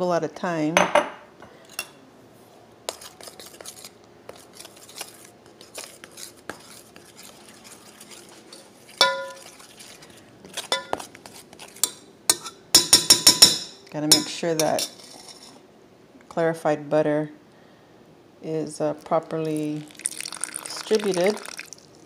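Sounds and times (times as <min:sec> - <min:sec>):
utensil scraping a metal pot: 0:02.9 - 0:15.6.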